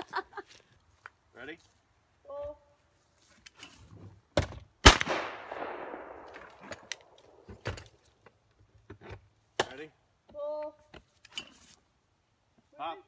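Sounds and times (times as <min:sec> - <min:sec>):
shotgun blast: 0:04.8 - 0:06.6.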